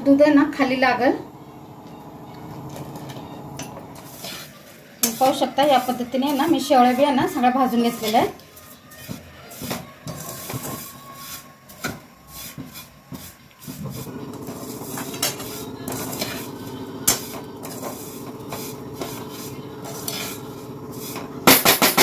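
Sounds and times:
steady low hum: 0:00.4 - 0:04.2, 0:14.1 - 0:22.0
metal skimmer scraping a pan: 0:02.0 - 0:21.5.

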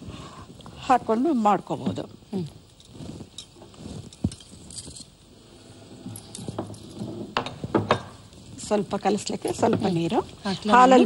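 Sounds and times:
bangles jingling: 0:02.4 - 0:05.3, 0:06.0 - 0:07.2.

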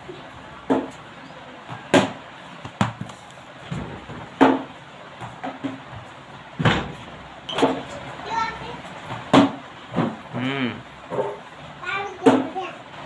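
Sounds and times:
ball bouncing on hard floor: 0:01.6 - 0:07.8
plastic bat striking ball: 0:01.9 - 0:03.1.

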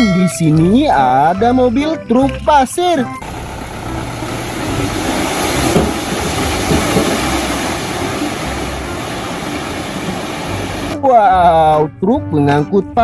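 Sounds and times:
soil sliding and pouring: 0:03.2 - 0:11.0
truck engine running: 0:03.2 - 0:11.0.

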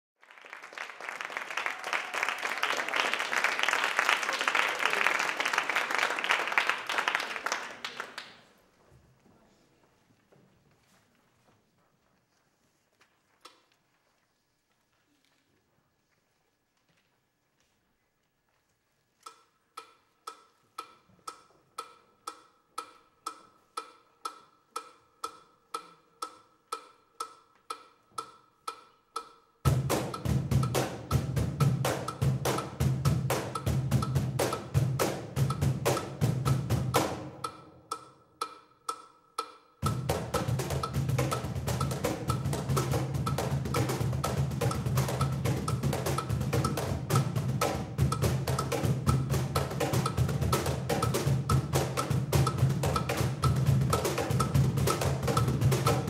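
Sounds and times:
audience applauding: 0:00.2 - 0:08.6
metronome clicking: 0:19.2 - 0:30.8, 0:32.0 - 0:32.7, 0:33.5 - 0:34.7, 0:37.3 - 0:56.0.

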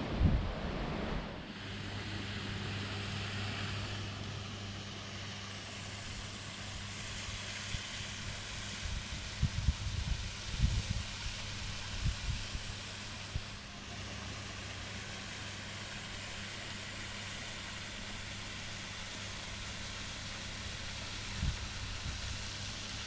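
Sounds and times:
wind buffeting microphone: 0:00.0 - 0:01.4, 0:08.9 - 0:12.6
low steady hum: 0:00.0 - 0:23.0.

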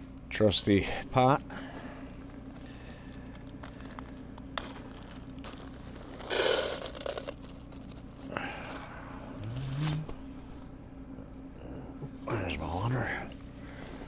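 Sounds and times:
air heater humming: 0:00.0 - 0:14.0
food packaging crinkling: 0:02.1 - 0:08.9.

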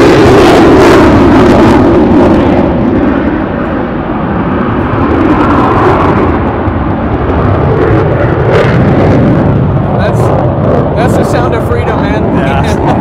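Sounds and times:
airplane engine overhead: 0:00.0 - 0:13.0.

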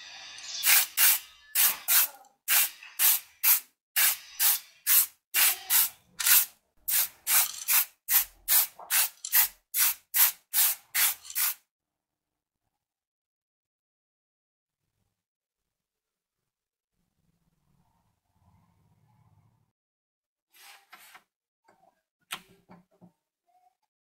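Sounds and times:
spray paint can hissing: 0:00.4 - 0:11.6.

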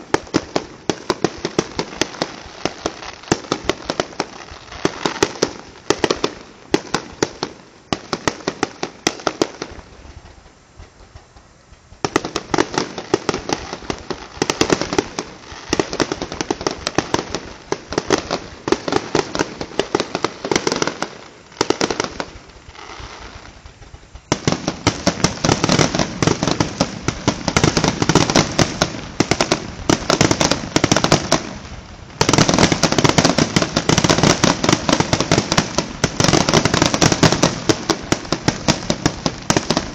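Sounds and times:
fireworks bangs and crackling: 0:00.0 - 0:39.9.

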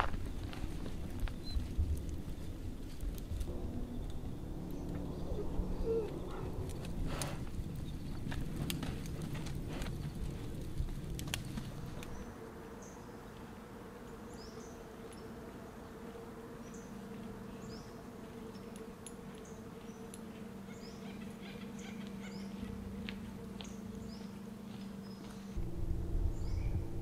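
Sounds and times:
campfire crackling and popping: 0:00.0 - 0:04.9, 0:06.6 - 0:12.3
steady low hum: 0:00.0 - 0:27.0
small birds chirping: 0:00.2 - 0:03.1, 0:07.4 - 0:08.9, 0:09.8 - 0:25.6, 0:26.3 - 0:27.0.

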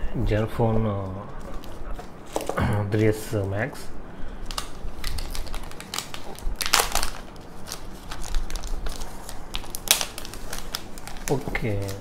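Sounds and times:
plastic film crackling: 0:04.4 - 0:12.0.

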